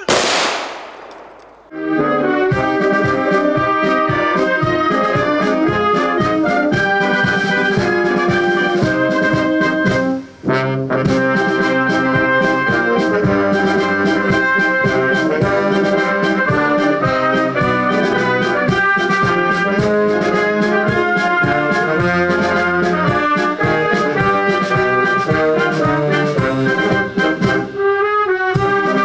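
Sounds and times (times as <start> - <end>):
brass band playing: 1.7 - 29.0.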